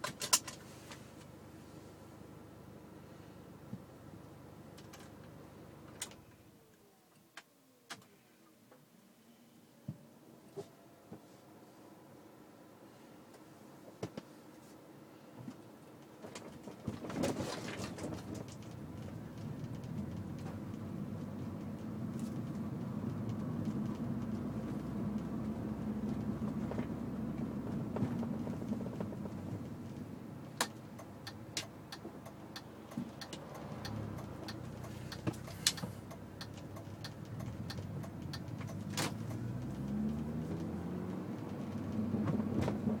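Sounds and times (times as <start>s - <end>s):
car rolling low drone: 0.6s - 6.0s, 17.8s - 43.0s
sharp clicks and knocks: 30.6s - 42.9s
engine note rising: 37.2s - 43.0s.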